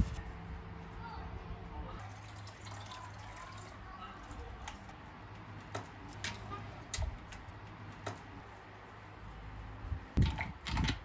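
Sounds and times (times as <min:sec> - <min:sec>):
water pouring into jug: 0:02.0 - 0:03.8.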